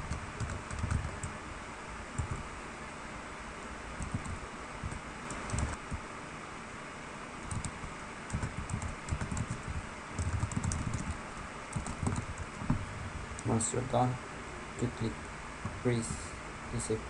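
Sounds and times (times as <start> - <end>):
keyboard typing: 0.0 - 1.4, 2.2 - 2.4, 4.0 - 6.0, 7.4 - 12.8
background hiss: 0.0 - 17.0.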